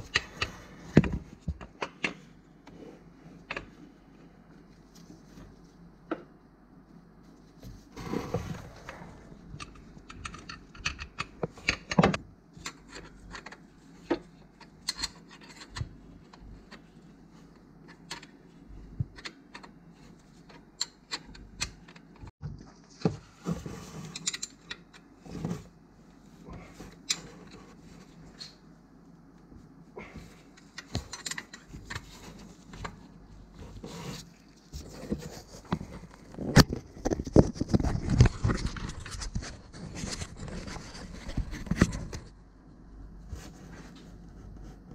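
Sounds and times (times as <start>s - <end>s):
tools clicking and knocking: 9.6s - 16.8s.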